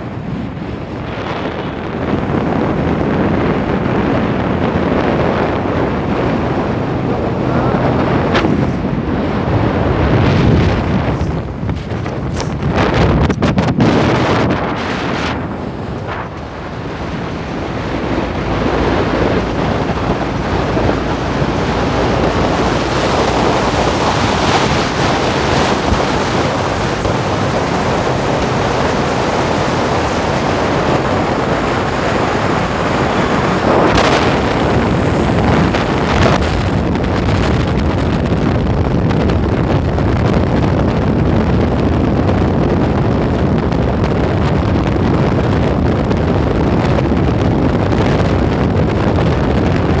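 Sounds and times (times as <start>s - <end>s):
motorcycle engine running: 0.0s - 37.1s
wind rushing over microphone: 0.0s - 50.0s.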